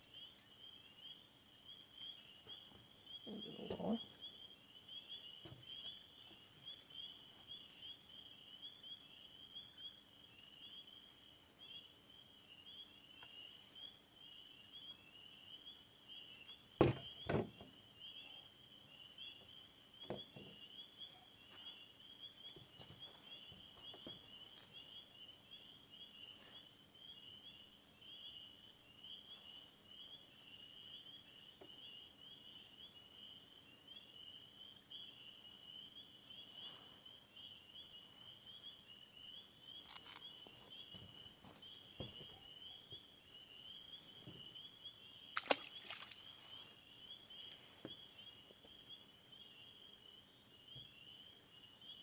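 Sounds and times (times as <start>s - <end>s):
night insects chirring: 0.0s - 52.0s.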